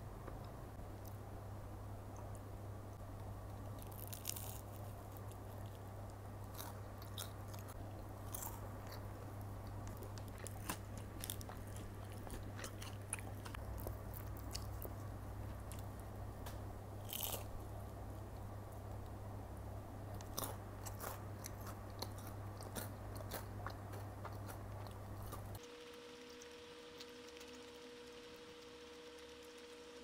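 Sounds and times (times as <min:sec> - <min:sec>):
low hum: 0:00.0 - 0:30.0
chewing: 0:03.5 - 0:16.1, 0:20.2 - 0:29.6
fried chicken crust crunching: 0:03.5 - 0:16.1, 0:17.0 - 0:18.0, 0:20.2 - 0:30.0.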